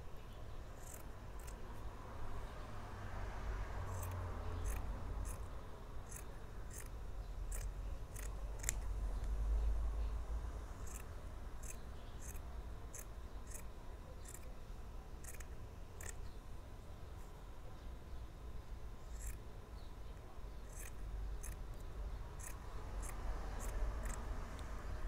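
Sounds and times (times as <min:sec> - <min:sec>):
scissors snipping fabric: 0:07.5 - 0:08.9.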